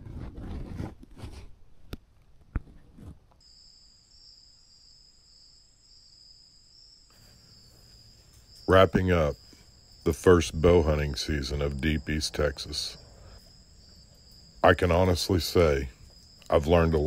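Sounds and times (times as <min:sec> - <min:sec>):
high insect trill: 0:03.4 - 0:17.0.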